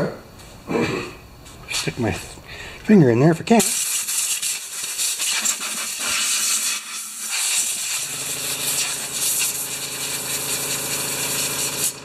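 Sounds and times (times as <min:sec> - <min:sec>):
machine hum: 0:00.0 - 0:03.6, 0:06.5 - 0:12.0
compressed air hissing: 0:03.6 - 0:12.0.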